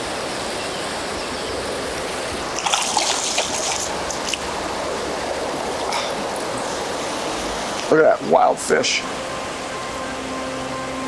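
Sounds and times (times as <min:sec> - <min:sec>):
turbulent creek rushing: 0:00.0 - 0:11.0
fish splashing at water surface: 0:02.5 - 0:04.5.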